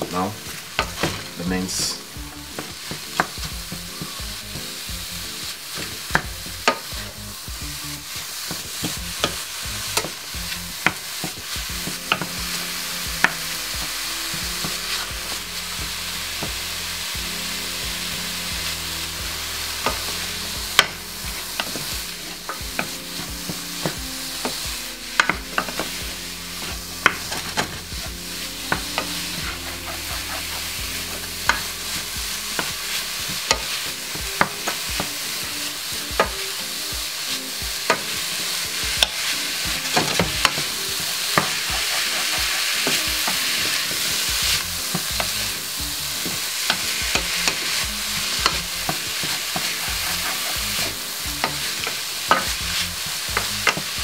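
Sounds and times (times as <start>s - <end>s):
meat and onions sizzling in pan: 0.0s - 54.0s
wooden spoon knocking on pan: 36.2s - 36.4s, 46.2s - 54.0s.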